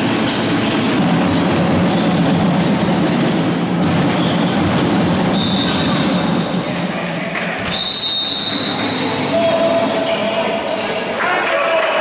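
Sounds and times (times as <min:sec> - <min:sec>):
murmur of players and spectators: 0:00.0 - 0:12.0
basketball bouncing on wooden court: 0:00.1 - 0:06.6.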